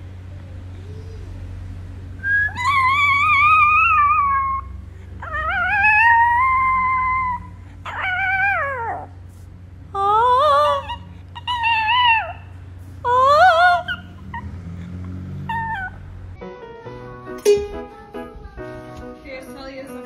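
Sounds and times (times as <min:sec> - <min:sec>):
dog howling: 0:02.2 - 0:09.2, 0:10.0 - 0:14.5, 0:15.4 - 0:16.0.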